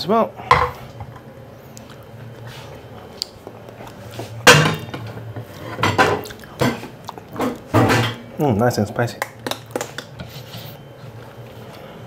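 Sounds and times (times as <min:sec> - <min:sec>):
cookware clattering: 0:07.4 - 0:08.2.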